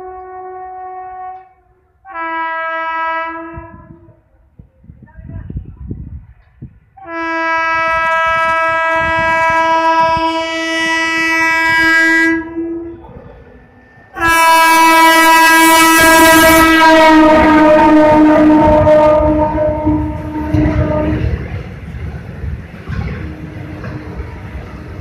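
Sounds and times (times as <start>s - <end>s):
locomotive horn blasts: 0.0s - 4.0s, 7.0s - 13.0s, 14.1s - 21.5s
train wheels rushing past: 8.0s - 25.0s.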